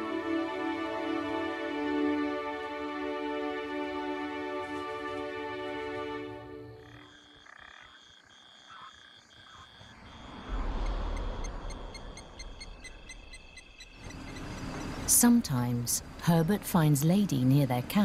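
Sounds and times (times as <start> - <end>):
high trill of frogs and insects: 6.6 - 16.6
rapid pulsed calls: 9.5 - 15.1
low rumble: 9.9 - 15.1.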